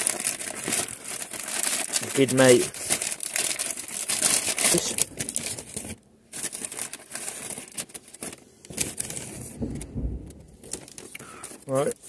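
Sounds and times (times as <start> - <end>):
paper packaging crinkling: 0.0 - 12.0
dull low bump: 9.4 - 10.7.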